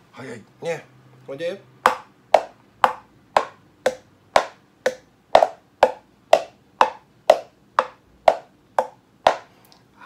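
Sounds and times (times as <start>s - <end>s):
mallet knocking wood block: 1.8s - 9.5s.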